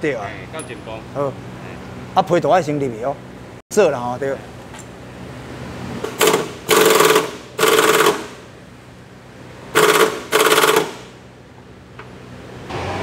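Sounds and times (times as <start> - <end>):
impact wrench rattling bursts: 6.0 - 8.5, 9.7 - 11.2.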